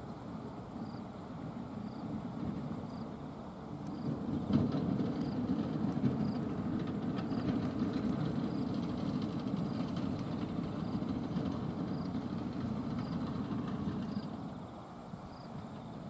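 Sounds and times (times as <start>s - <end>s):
steel tracks clanking: 1.8s - 16.0s
bulldozer diesel engine running: 3.5s - 16.0s.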